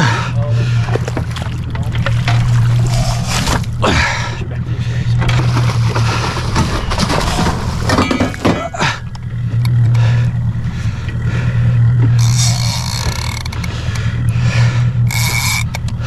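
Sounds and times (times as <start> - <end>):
water splashing: 0.0 - 4.3
boat motor humming: 0.0 - 16.0
wind: 0.0 - 16.0.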